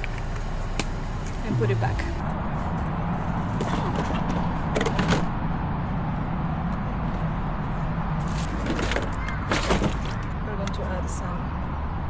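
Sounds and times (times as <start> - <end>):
low engine rumble: 0.0 - 7.0.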